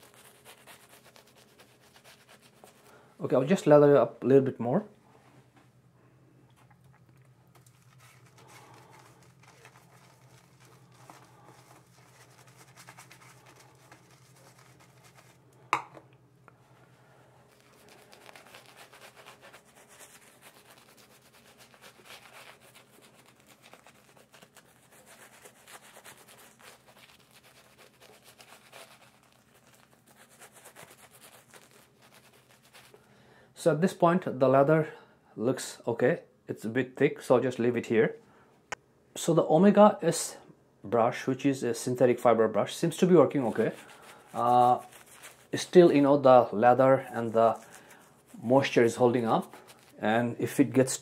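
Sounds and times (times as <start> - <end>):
shaving brush scratchy strokes: 0.0 - 3.0, 7.5 - 15.4, 17.5 - 33.0, 42.9 - 51.0.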